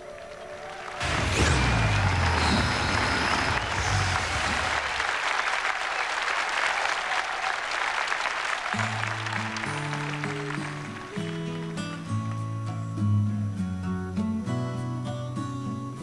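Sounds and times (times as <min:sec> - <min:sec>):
audience applauding: 0:00.0 - 0:12.4
instrumental song notes: 0:08.8 - 0:16.0.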